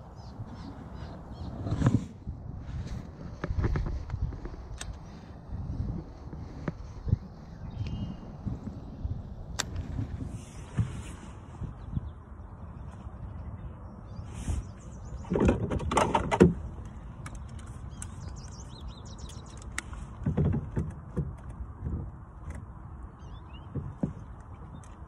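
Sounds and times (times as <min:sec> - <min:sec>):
small birds chirping: 0:00.0 - 0:01.8, 0:03.4 - 0:09.1, 0:11.0 - 0:15.6, 0:16.6 - 0:20.2, 0:23.1 - 0:25.0
rustling and knocking handling noises: 0:02.7 - 0:07.1, 0:19.8 - 0:22.6, 0:23.6 - 0:25.0.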